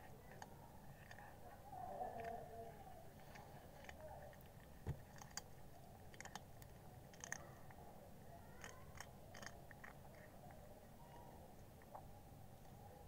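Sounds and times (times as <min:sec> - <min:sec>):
cat crunching chips: 0:03.1 - 0:07.8, 0:08.4 - 0:10.7.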